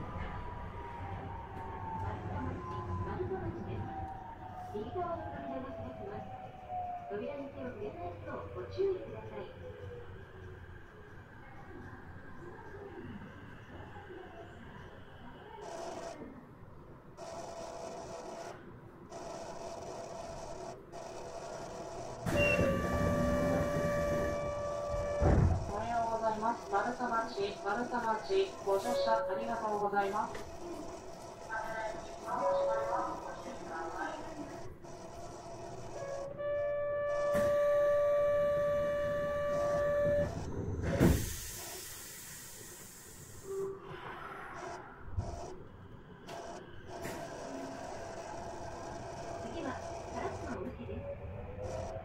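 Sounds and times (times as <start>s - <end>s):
train interior hum: 20.5s - 52.0s
door buzzer: 22.2s - 25.7s, 37.0s - 40.4s
doors shutting thud: 24.9s - 25.7s
hiss: 41.0s - 43.6s.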